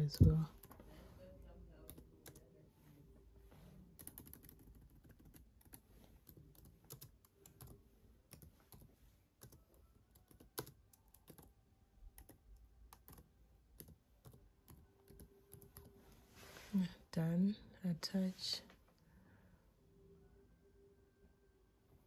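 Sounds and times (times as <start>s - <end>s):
typing on laptop keyboard: 4.0s - 11.5s, 12.1s - 15.9s.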